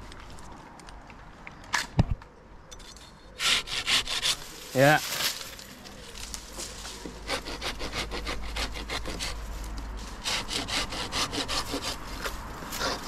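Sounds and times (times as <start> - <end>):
handsaw cutting wood: 3.4 - 4.5, 7.2 - 9.4, 10.2 - 13.0.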